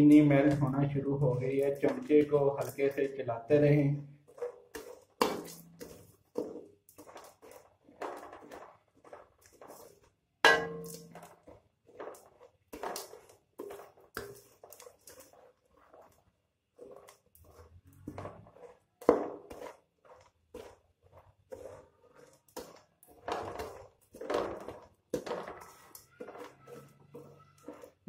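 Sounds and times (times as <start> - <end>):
metal spoon scraping wok: 0.0 - 28.0
spoon knocking on wok: 10.4 - 11.2.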